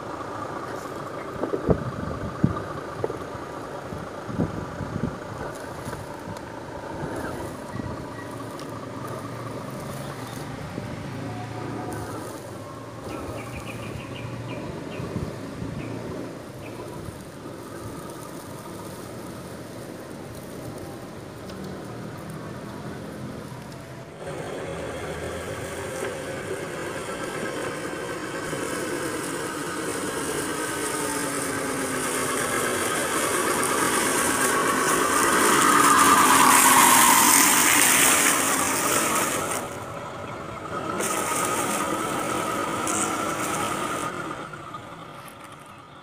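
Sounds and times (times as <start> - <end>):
dry leaves crackling: 4.0 - 15.2, 15.8 - 45.8
toy truck motor whining: 5.0 - 13.9, 23.5 - 45.8.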